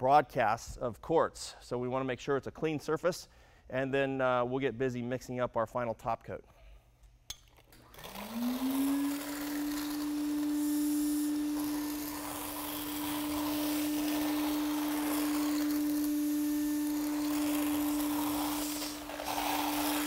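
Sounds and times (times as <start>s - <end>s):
vacuum cleaner motor humming: 7.8s - 20.0s
vacuum suction noise: 7.8s - 20.0s.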